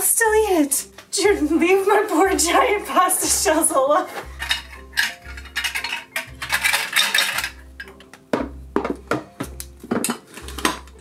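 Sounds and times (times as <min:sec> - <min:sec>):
background music with beat: 0:04.1 - 0:11.0
pasta shells rattling into glass jar: 0:04.2 - 0:08.0.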